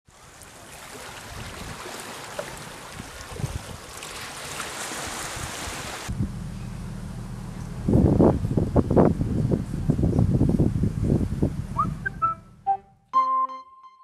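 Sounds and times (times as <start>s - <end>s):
waves washing over rocky shore: 0.2s - 6.1s.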